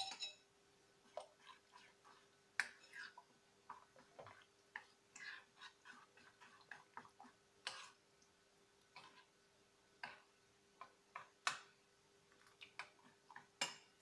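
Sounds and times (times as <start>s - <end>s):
spoon scraping glass bowl: 1.2s - 3.2s.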